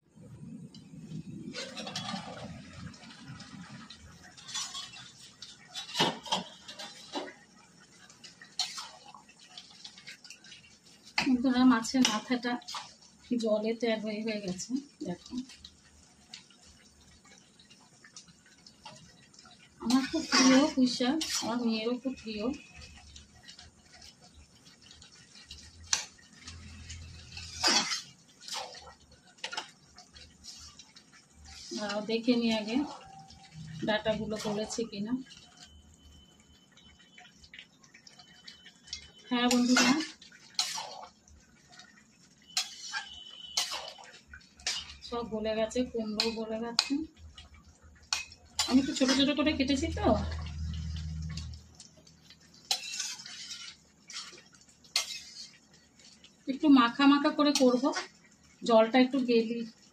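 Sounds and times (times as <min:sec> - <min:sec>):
metal spatula stirring in pan: 0:00.8 - 0:59.2
spatula scraping metal pot: 0:01.5 - 0:02.8, 0:04.4 - 0:07.4, 0:19.8 - 0:21.8, 0:25.9 - 0:29.7, 0:30.4 - 0:33.0, 0:39.4 - 0:41.2, 0:42.4 - 0:45.1, 0:48.1 - 0:50.3, 0:52.7 - 0:55.6.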